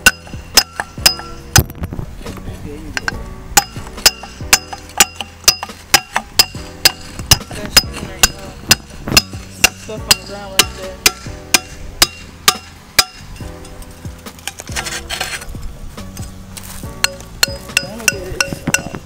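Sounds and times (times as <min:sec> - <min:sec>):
metal bar striking metal: 0:00.0 - 0:01.8, 0:03.0 - 0:15.5, 0:16.9 - 0:19.0.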